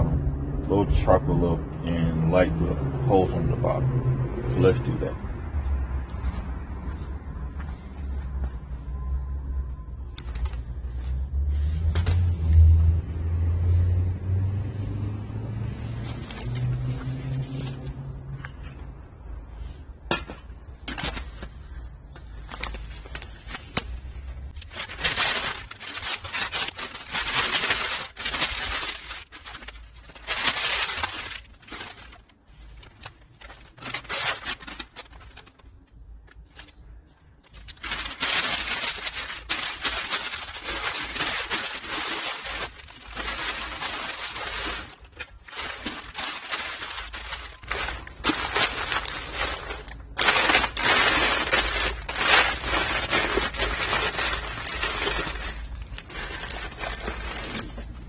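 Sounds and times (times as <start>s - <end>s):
newspaper being crumpled: 15.7s - 18.7s, 20.8s - 58.0s.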